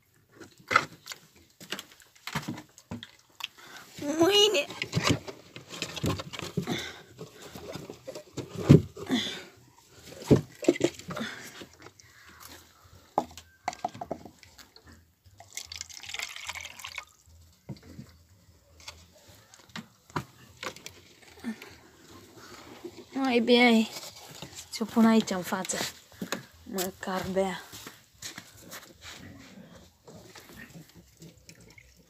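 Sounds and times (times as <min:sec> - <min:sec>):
water dripping: 0:15.4 - 0:17.2, 0:31.3 - 0:32.0
water pouring and splashing: 0:15.4 - 0:18.0, 0:31.0 - 0:32.0.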